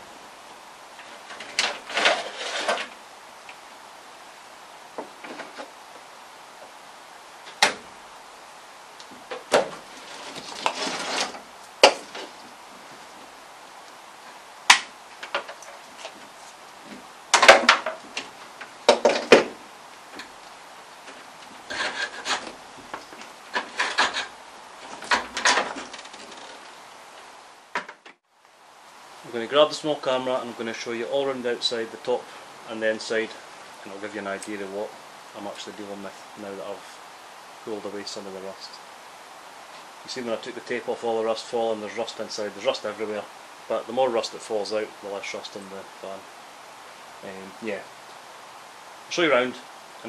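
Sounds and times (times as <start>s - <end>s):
wires scraping against metal: 1.0s - 3.0s, 9.2s - 12.5s, 21.0s - 26.8s.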